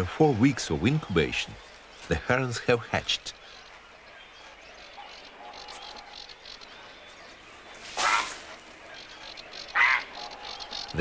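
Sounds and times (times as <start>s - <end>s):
distant bird calls: 0.0s - 11.0s
heron harsh call: 8.0s - 8.5s, 9.7s - 10.4s
frog calls: 8.0s - 11.0s.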